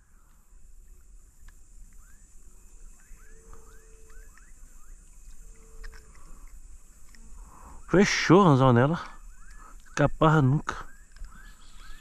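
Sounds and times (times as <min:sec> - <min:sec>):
high insect drone: 0:00.0 - 0:12.0
bird chirping: 0:02.9 - 0:12.0
faint clicks: 0:03.0 - 0:07.8, 0:08.9 - 0:10.1, 0:10.9 - 0:12.0.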